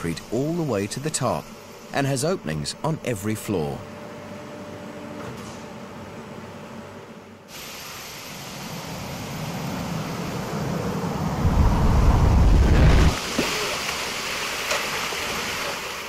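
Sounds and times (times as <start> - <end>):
heavy low rumble: 10.1 - 13.2.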